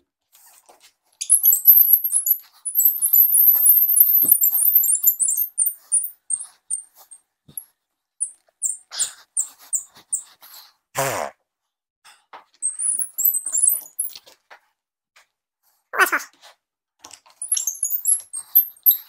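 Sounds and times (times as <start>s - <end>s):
hand brace squeaking through wood: 1.2s - 6.9s, 12.6s - 14.2s, 17.4s - 19.0s.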